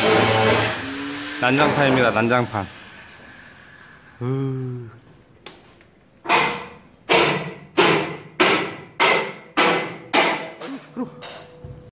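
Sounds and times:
hammer blows ringing: 6.3s - 10.6s.

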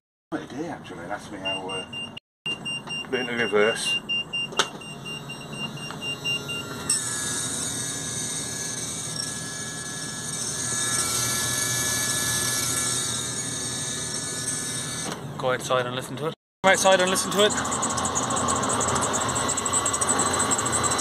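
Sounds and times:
rapid beeping: 1.4s - 7.0s, 16.6s - 21.0s
pump motor electric whine: 2.6s - 15.4s, 16.7s - 21.0s.

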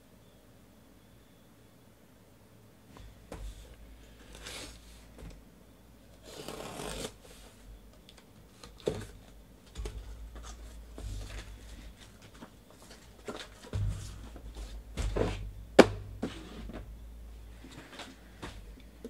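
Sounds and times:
sharp knock: 13.8s - 16.8s.

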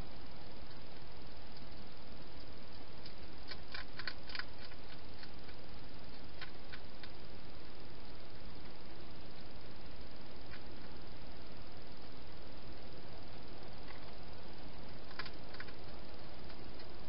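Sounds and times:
steady hiss: 0.0s - 17.0s
hedgehog crunching food: 2.4s - 7.4s, 14.9s - 17.0s.

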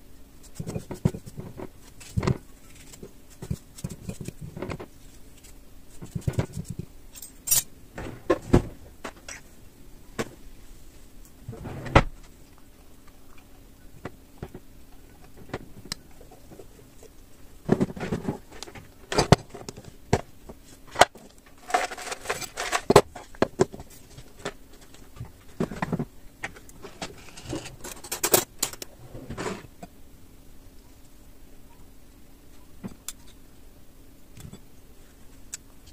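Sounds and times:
small objects clattering: 21.2s - 23.8s.

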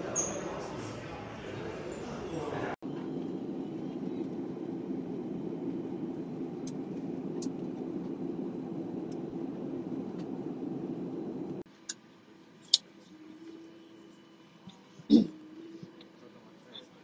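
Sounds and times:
jet airliner cabin noise: 0.0s - 12.2s.

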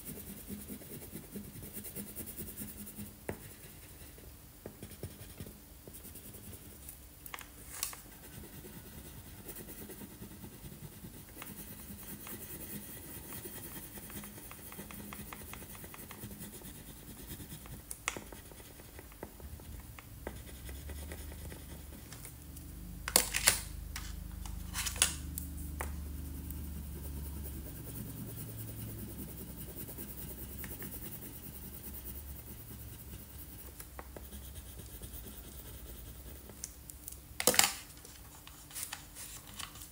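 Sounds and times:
crayon scratching on paper: 0.0s - 4.2s, 4.8s - 6.8s, 8.1s - 22.1s, 25.8s - 36.6s.

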